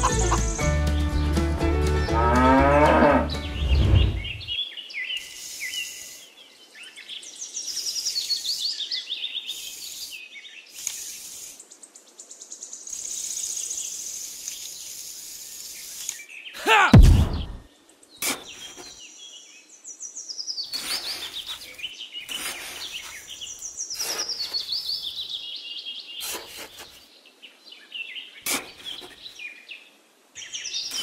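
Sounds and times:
birds chirping: 0:00.0 - 0:31.0
cow mooing: 0:02.1 - 0:03.4
short loud sweeping sound: 0:03.6 - 0:04.5, 0:17.0 - 0:17.6.

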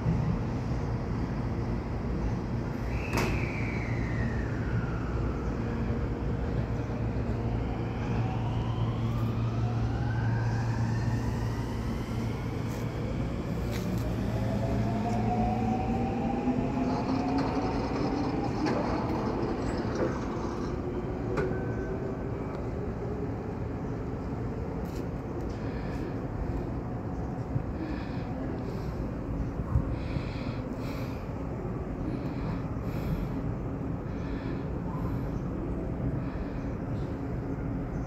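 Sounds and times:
electric train motor whine: 0:03.9 - 0:23.7
steady low hum: 0:04.3 - 0:38.0.

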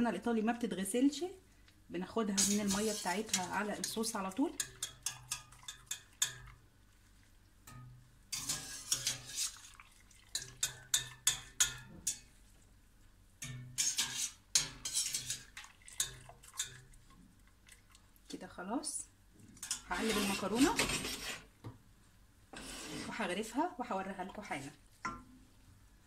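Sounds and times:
metal strainer clinking and scraping: 0:02.4 - 0:06.5, 0:07.7 - 0:12.3, 0:13.4 - 0:16.8, 0:19.6 - 0:21.4
water dripping: 0:09.5 - 0:12.3, 0:15.5 - 0:18.4.

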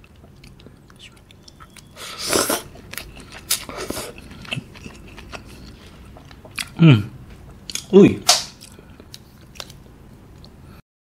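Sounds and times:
close-miked chewing noodles: 0:00.0 - 0:06.8.

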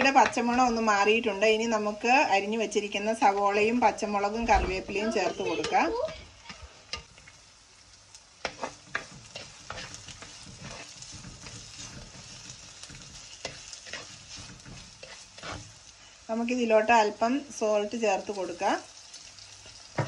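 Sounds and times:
vegetables sizzling in hot oil: 0:00.0 - 0:20.0
spatula scraping a pot: 0:08.4 - 0:15.9.

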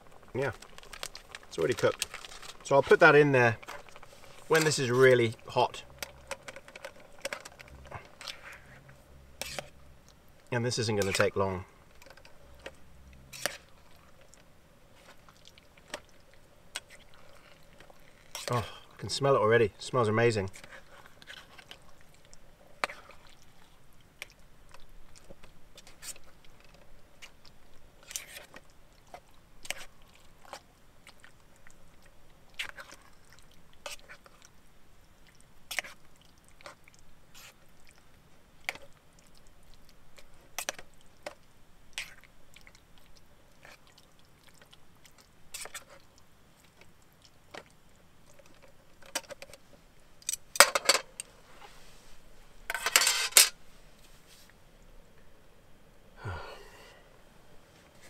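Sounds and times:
spoon scraping metal pot: 0:09.4 - 0:09.8, 0:52.7 - 0:53.5.

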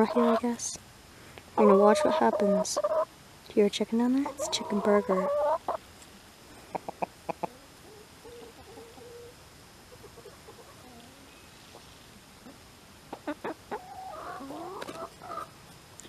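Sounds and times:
hens clucking softly: 0:01.6 - 0:03.1, 0:04.2 - 0:05.8, 0:06.6 - 0:15.6.

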